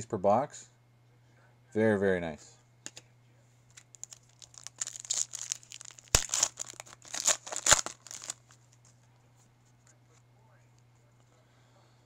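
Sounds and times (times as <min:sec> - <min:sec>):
foil wrapper crinkling and tearing: 0:03.8 - 0:08.9.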